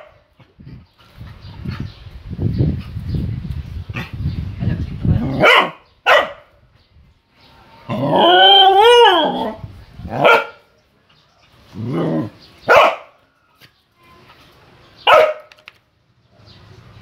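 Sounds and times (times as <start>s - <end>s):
dog barking: 5.4s - 6.5s, 10.2s - 10.6s, 12.7s - 13.2s, 15.0s - 15.5s.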